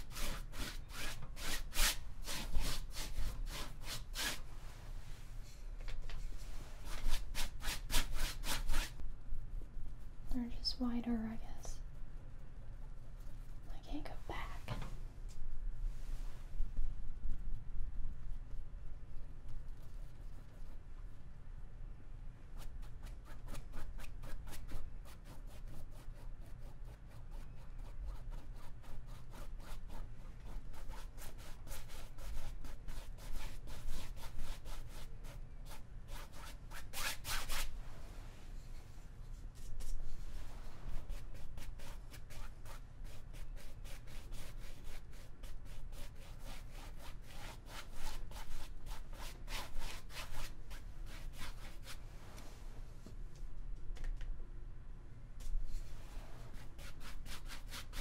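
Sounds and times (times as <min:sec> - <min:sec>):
paintbrush rubbing on canvas: 0:11.8 - 0:14.1.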